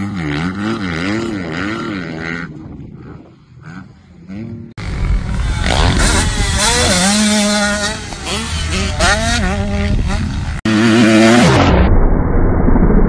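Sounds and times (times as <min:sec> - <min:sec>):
dirt bike engines revving: 0:00.0 - 0:11.7
distant dirt bike: 0:00.0 - 0:11.9.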